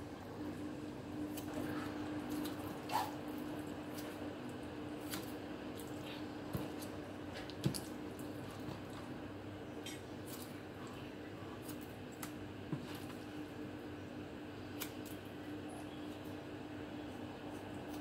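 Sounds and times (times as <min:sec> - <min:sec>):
wet squishing of raw chicken: 0:00.9 - 0:09.2, 0:09.8 - 0:13.4.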